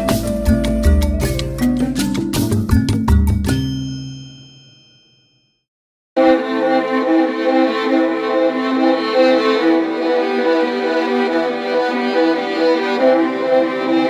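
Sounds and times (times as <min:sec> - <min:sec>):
violin melody with strings: 0:06.2 - 0:14.0.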